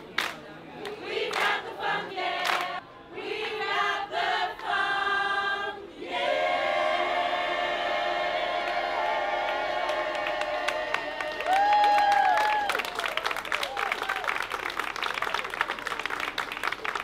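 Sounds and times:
choir singing a cappella: 0.8s - 11.5s.

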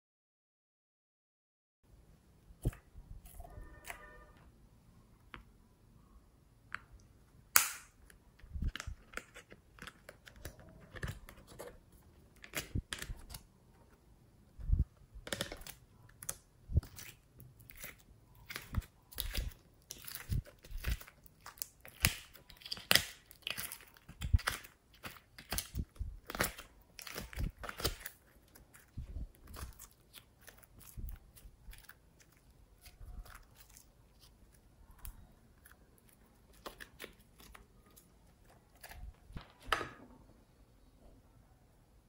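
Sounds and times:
slime squishing: 14.7s - 39.7s.

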